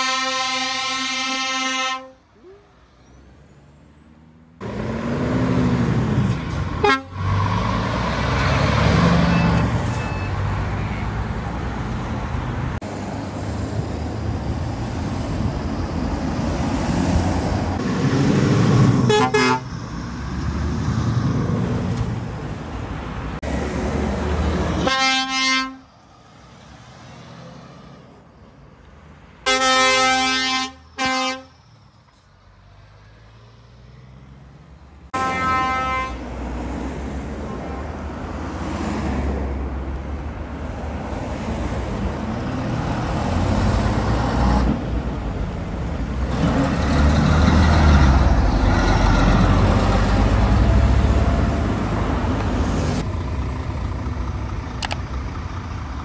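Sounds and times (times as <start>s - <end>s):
air horn blasts: 0.0s - 2.2s, 6.8s - 7.3s, 19.1s - 19.7s, 24.8s - 25.9s, 29.4s - 31.6s, 35.1s - 36.2s
truck horn toot: 0.0s - 2.2s, 6.8s - 7.4s, 19.1s - 19.8s, 24.8s - 25.9s, 29.4s - 31.7s, 35.1s - 36.3s
truck diesel engines revving: 0.0s - 56.0s.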